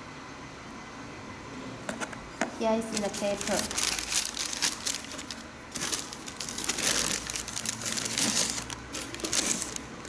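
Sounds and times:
wrapping paper crinkling: 2.8 - 10.0.

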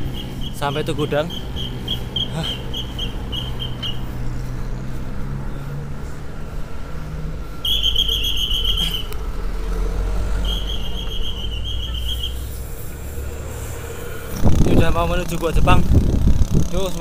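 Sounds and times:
high fast-pulsing chirp: 0.0 - 4.1, 7.6 - 9.1, 10.4 - 12.6
bicycle road and wind rumble: 0.0 - 17.0
vehicle engine hum: 0.0 - 17.0.

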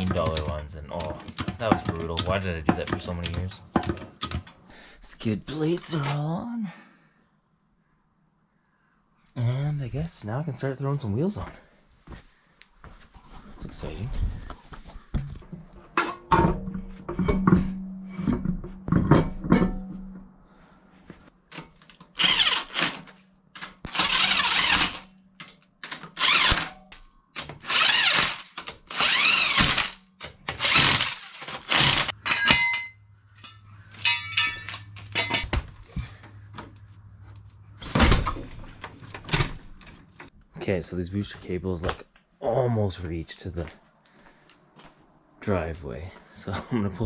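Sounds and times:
wheel knocking and clanking on hub: 0.0 - 4.5
electric impact wrench bursts: 22.2 - 23.0, 23.9 - 25.1, 26.2 - 26.7, 27.6 - 30.0, 30.6 - 32.1.

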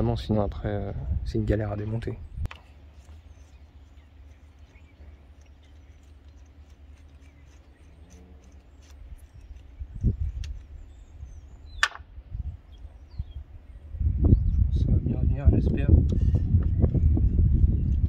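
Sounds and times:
steady low rumble: 0.0 - 18.0
sharp click: 11.8 - 12.1.

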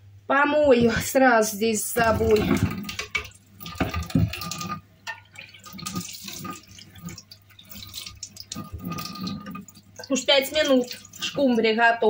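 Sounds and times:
rinsing clatter: 1.9 - 11.8
tap water running into sink: 2.0 - 11.6.

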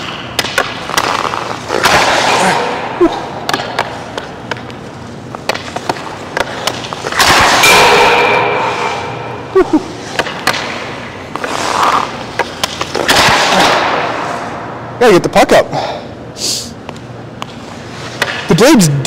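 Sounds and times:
hockey stick knocking pucks: 0.0 - 2.6, 3.4 - 8.1, 10.0 - 14.0, 16.9 - 18.5
skate blades scraping ice: 0.0 - 2.8, 3.5 - 7.6, 10.0 - 14.5.

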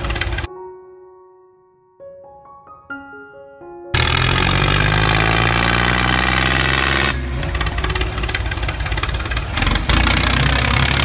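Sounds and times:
tractor engine running: 0.0 - 0.5, 4.0 - 11.0.

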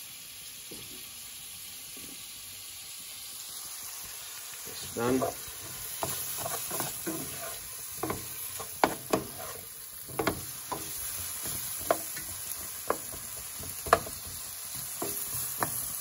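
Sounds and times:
vegetables sizzling in oil: 0.0 - 16.0
spatula scraping and tapping pan: 5.0 - 16.0.

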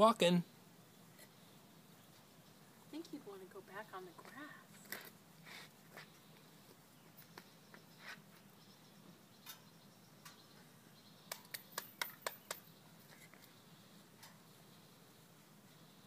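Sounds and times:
soft ticks: 9.4 - 10.4, 14.2 - 14.4
hands clapping: 11.3 - 12.6.

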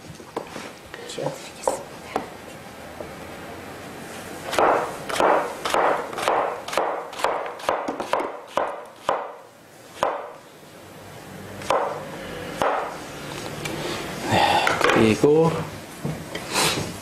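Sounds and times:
knife chopping on wooden board: 4.5 - 9.4, 10.0 - 10.4, 11.6 - 12.0, 12.6 - 12.9.

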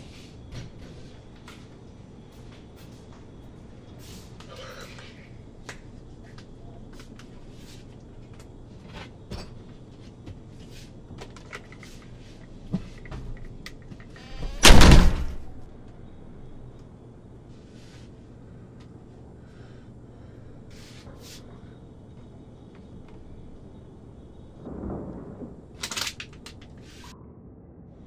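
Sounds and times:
door slamming shut: 14.2 - 15.6.

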